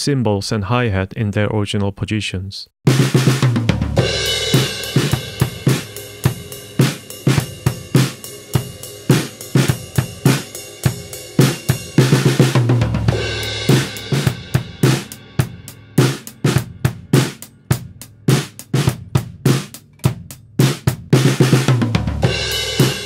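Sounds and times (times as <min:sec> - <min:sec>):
drum kit groove: 0:02.8 - 0:23.0
cymbal crash: 0:04.0 - 0:17.4.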